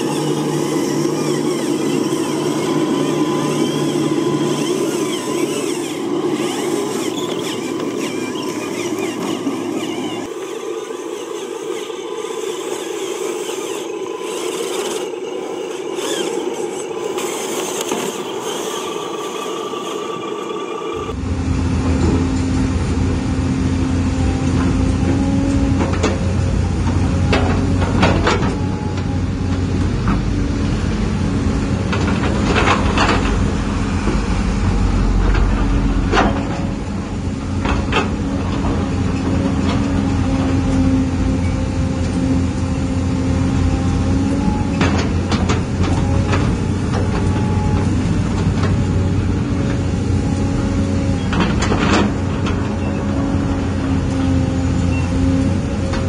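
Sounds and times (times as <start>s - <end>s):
electric motor and gears running: 0.0s - 56.0s
hydraulic pump hum: 0.0s - 56.0s.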